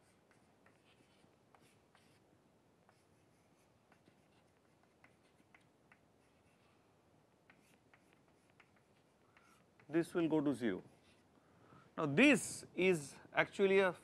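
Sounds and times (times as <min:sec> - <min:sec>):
chalk tapping and scraping on board: 0:00.0 - 0:02.2, 0:02.9 - 0:06.8, 0:07.4 - 0:10.1.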